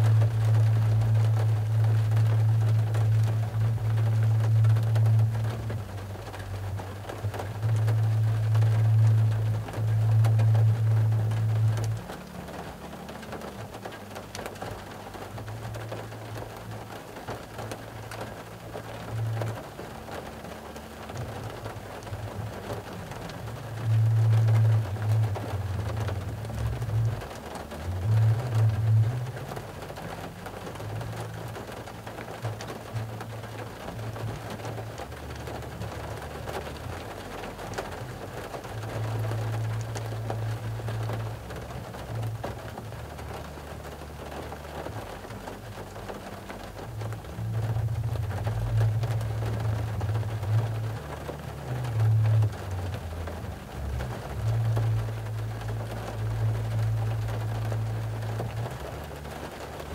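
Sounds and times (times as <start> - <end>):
low droning hum: 0.0 - 59.9
rain on a car roof: 0.0 - 59.9.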